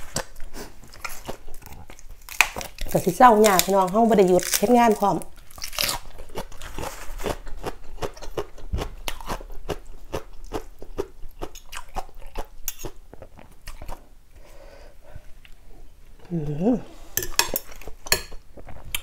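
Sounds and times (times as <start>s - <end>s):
crunchy chewing of lettuce: 0.0s - 14.1s.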